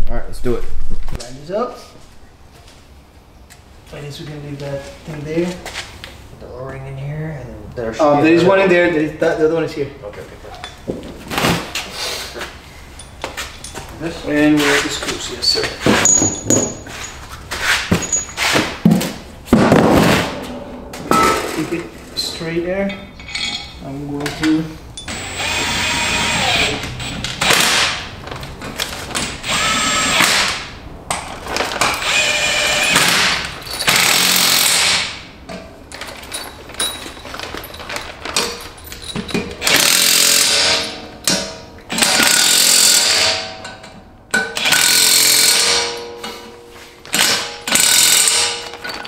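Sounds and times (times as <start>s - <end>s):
impact driver hammering screws: 29.3s - 30.6s, 31.8s - 35.2s, 39.6s - 41.0s, 41.9s - 43.4s, 47.1s - 48.8s.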